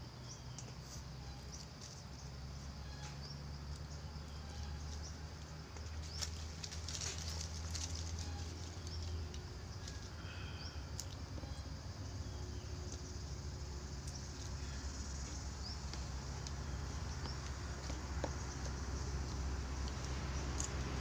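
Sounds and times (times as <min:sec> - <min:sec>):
steady low hum: 0:00.0 - 0:21.0
fruit skins peeled by hand: 0:04.6 - 0:21.0
faint bird chirps: 0:07.0 - 0:13.2.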